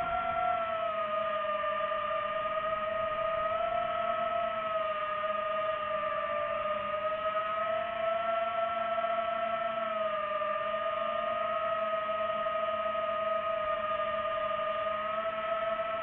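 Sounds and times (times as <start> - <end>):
drone propellers whining: 0.0 - 7.0.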